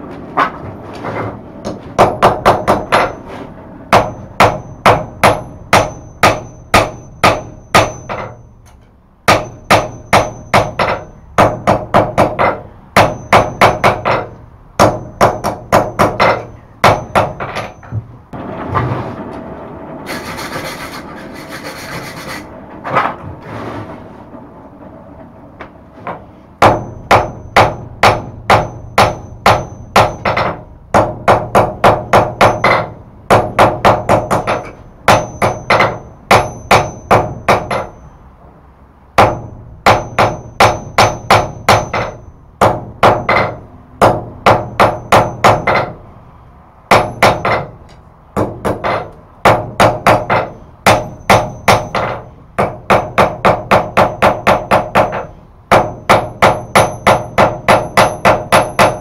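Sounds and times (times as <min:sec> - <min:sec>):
hammer striking metal on anvil: 0:03.9 - 0:18.0, 0:26.1 - 0:38.2, 0:39.2 - 0:46.0, 0:46.9 - 0:59.0.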